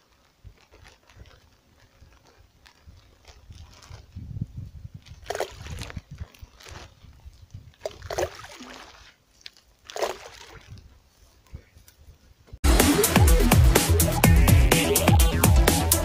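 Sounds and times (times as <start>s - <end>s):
wind rumbling on microphone: 0.0s - 8.6s, 10.4s - 12.6s
bait splashing into water: 5.2s - 6.0s, 7.8s - 10.8s.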